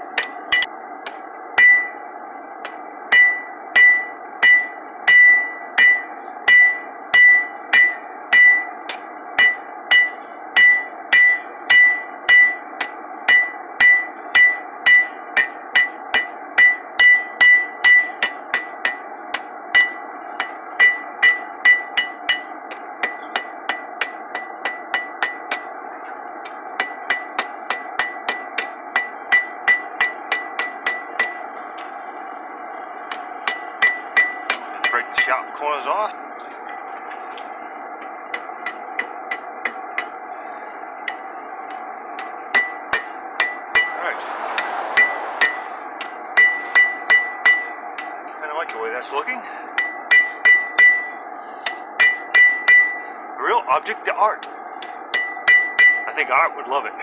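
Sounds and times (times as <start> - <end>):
hammer ringing on anvil: 0.2 - 0.7, 1.6 - 25.7, 26.8 - 31.5, 33.1 - 35.6, 38.3 - 40.2, 42.2 - 44.0, 44.6 - 48.2, 49.8 - 53.2, 54.8 - 56.3.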